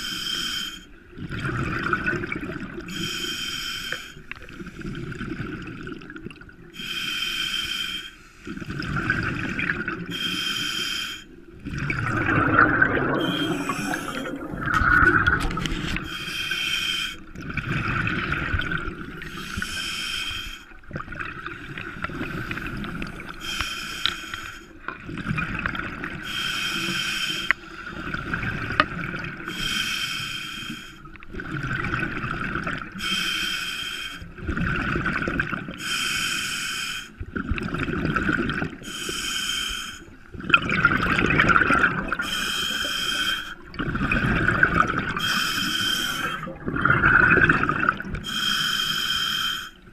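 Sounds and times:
diver breathing through regulator: 0:00.0 - 0:00.9, 0:02.9 - 0:05.0, 0:06.8 - 0:08.6, 0:10.1 - 0:11.4, 0:12.3 - 0:17.3, 0:19.2 - 0:20.8, 0:22.2 - 0:24.8, 0:26.2 - 0:28.0, 0:29.5 - 0:31.2, 0:33.0 - 0:34.3, 0:35.8 - 0:37.2, 0:38.8 - 0:40.2, 0:42.1 - 0:43.6, 0:45.0 - 0:46.6, 0:48.0 - 0:49.8
exhaled bubbles rushing: 0:01.2 - 0:02.9, 0:08.5 - 0:10.1, 0:11.5 - 0:16.1, 0:17.3 - 0:19.4, 0:25.0 - 0:26.2, 0:27.9 - 0:29.5, 0:31.3 - 0:33.0, 0:34.4 - 0:35.8, 0:37.3 - 0:38.8, 0:40.3 - 0:42.3, 0:43.6 - 0:45.2, 0:46.2 - 0:48.2.

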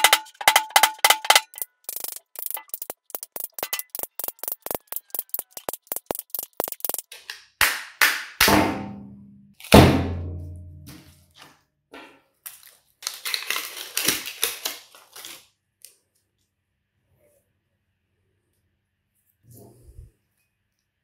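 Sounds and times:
metal pieces clicking and rattling: 0:00.0 - 0:07.1.

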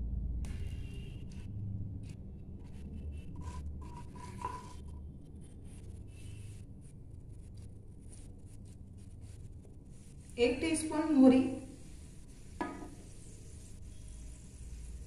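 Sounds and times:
spatula scraping a pan: 0:02.7 - 0:05.0.

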